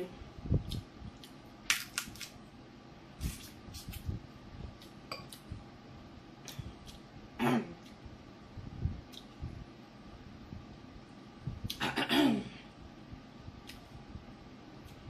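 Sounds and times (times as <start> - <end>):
seafood shells cracking: 1.7 - 2.4.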